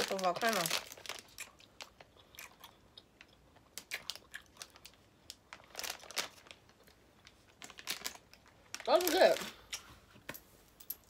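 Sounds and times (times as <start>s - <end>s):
plastic candy bag crinkling: 0.0s - 2.6s, 3.6s - 9.7s.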